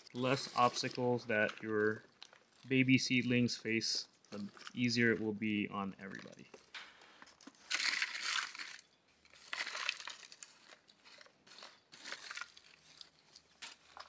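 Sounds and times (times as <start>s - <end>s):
hands rustling potting mix: 0.0s - 14.0s.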